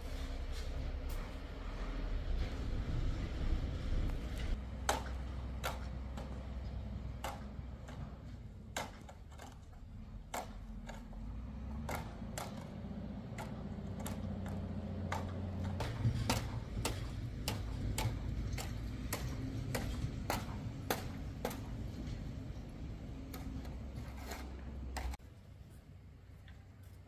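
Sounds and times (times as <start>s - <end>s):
low rumble: 0.0s - 5.6s.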